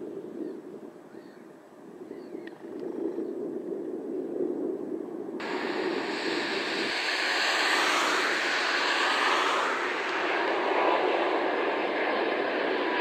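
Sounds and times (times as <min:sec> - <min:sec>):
faint low rumble: 0:02.0 - 0:13.0
jet engine rushing hiss and whine: 0:05.3 - 0:13.0.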